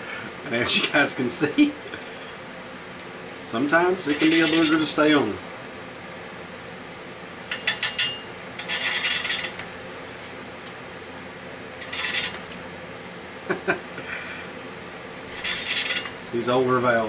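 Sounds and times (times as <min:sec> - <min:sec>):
valve grinding rasp: 0:04.0 - 0:05.0, 0:07.4 - 0:09.7, 0:11.7 - 0:12.6, 0:15.2 - 0:16.3.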